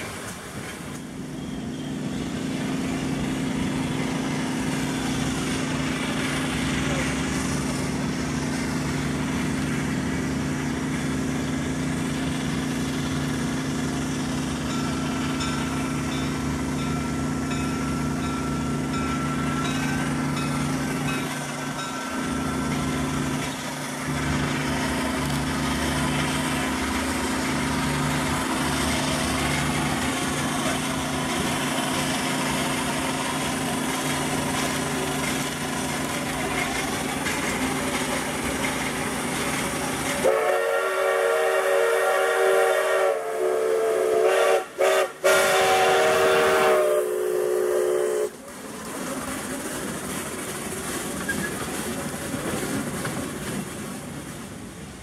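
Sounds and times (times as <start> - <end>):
train cars rumbling on rails: 0.0 - 55.0
steam whistle blast: 40.2 - 48.4.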